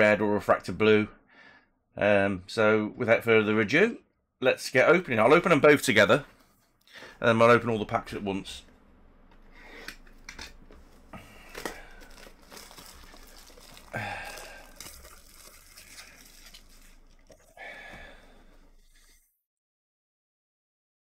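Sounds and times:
packaging crinkling: 9.7 - 19.2
packaging ripping: 11.1 - 17.6.

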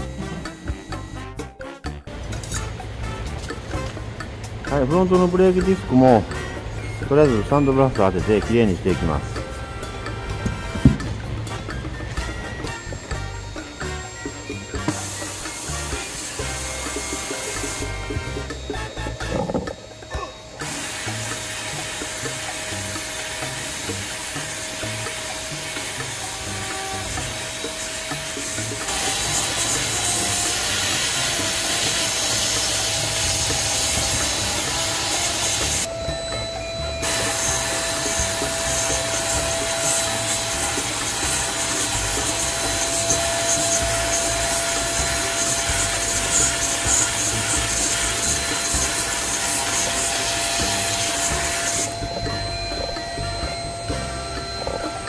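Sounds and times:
steady hum: 9.1 - 30.0, 35.7 - 55.0
sandblast gun hissing: 12.9 - 18.9, 20.6 - 35.9, 37.0 - 52.0.

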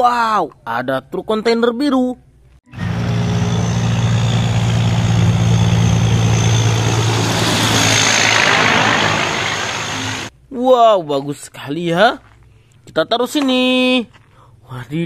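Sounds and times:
truck diesel engine passing: 2.7 - 10.3
tyre and road noise: 2.8 - 10.3.

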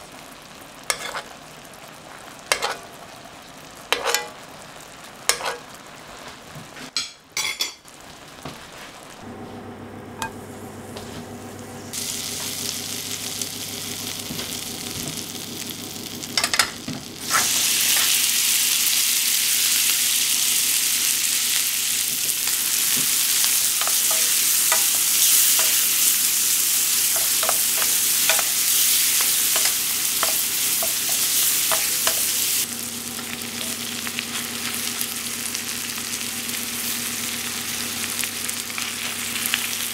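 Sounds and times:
corn sizzling in frying pan: 0.0 - 9.6, 11.8 - 39.9
metal spoon clinking on pan: 3.9 - 4.3
popping in frying pan: 12.0 - 19.7.

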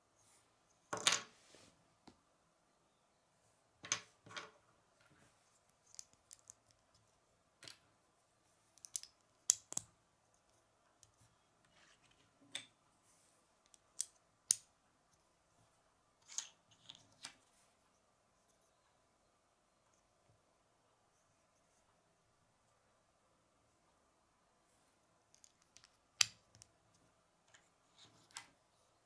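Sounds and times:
plastic bricks clicking and snapping: 5.8 - 6.8, 8.8 - 9.9.

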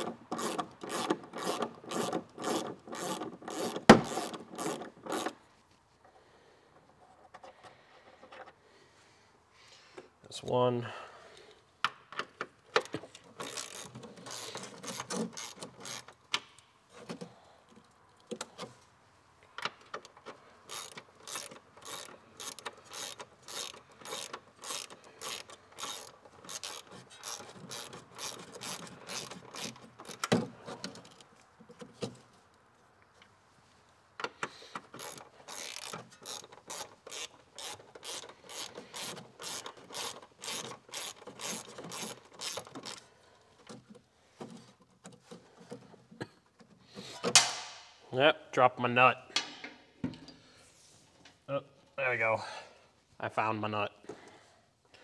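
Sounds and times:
hand ratchet clicking: 0.0 - 5.4, 12.8 - 16.5, 19.8 - 31.3, 34.2 - 43.1.

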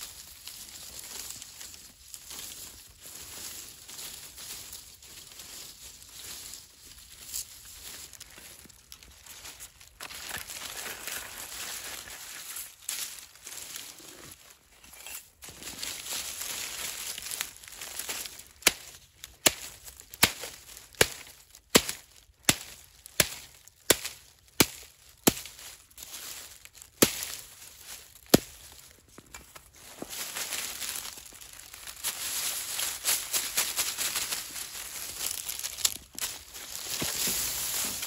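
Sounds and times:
dry reeds rustling: 0.0 - 38.0
knife chopping dry reeds: 18.0 - 25.6, 26.9 - 27.5, 28.2 - 29.7, 35.3 - 38.0.

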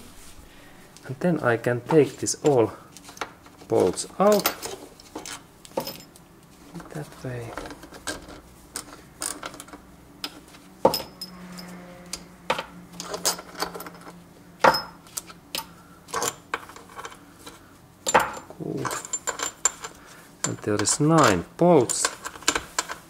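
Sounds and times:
metal bolts clinking: 4.2 - 6.1, 18.0 - 23.0.

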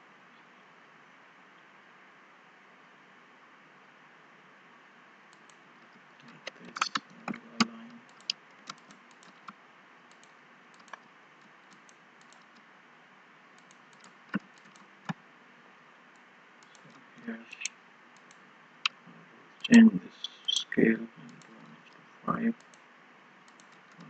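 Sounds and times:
low steady hiss: 0.0 - 24.0
keyboard keys clicking: 6.4 - 9.5
mouse buttons clicking: 6.4 - 9.5, 19.6 - 21.4.

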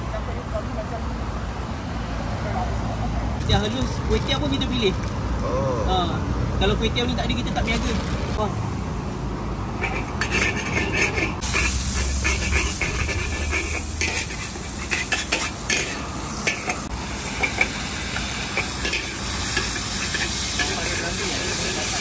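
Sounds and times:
metal spatula scraping a wok: 9.7 - 22.0
noodles sizzling in hot oil: 9.8 - 22.0.

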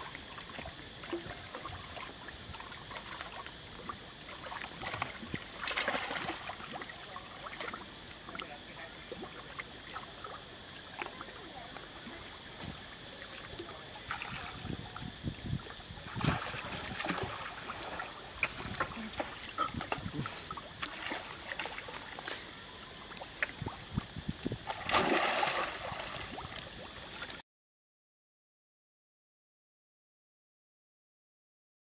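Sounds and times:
monkeys splashing in water: 4.4 - 7.8, 16.1 - 22.4, 24.6 - 27.2
big splash: 24.6 - 26.5.

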